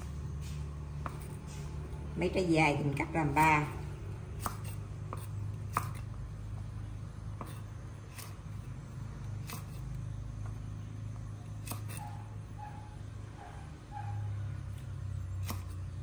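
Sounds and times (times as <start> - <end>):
steady low hum: 0.0 - 16.0
knife chopping on wooden board: 4.3 - 6.2, 7.3 - 8.7, 9.3 - 10.6, 11.5 - 12.1, 15.4 - 16.0.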